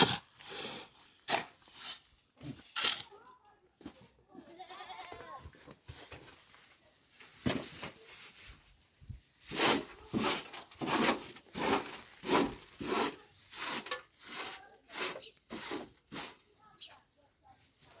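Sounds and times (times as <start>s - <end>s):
cloth scraping trough bottom: 9.5s - 16.4s.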